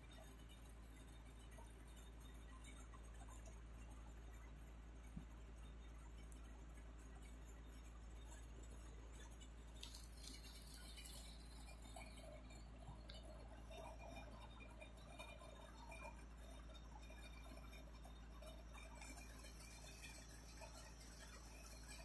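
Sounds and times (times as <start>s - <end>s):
low steady hum: 0.0s - 22.0s
cat licking fur: 8.6s - 14.4s.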